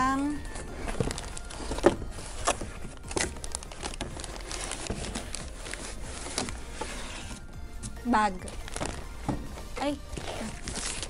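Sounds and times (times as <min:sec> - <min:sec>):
plastic wrapping crinkling: 0:00.2 - 0:11.0
cardboard box flaps scraping: 0:04.7 - 0:07.6.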